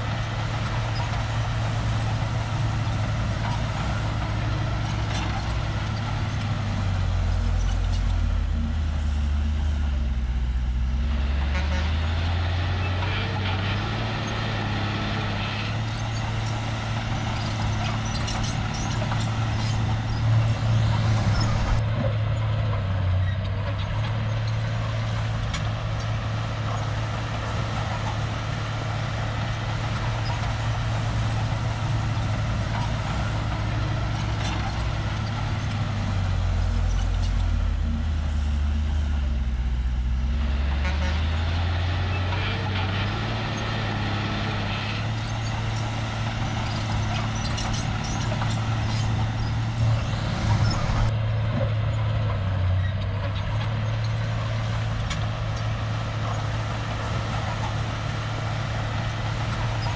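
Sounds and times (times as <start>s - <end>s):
bulldozer diesel engine running: 0.0s - 59.9s.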